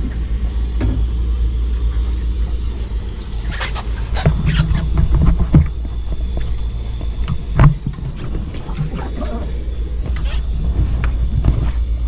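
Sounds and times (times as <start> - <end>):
low rumble on boat deck: 0.0 - 12.0
water splashes: 1.8 - 11.4.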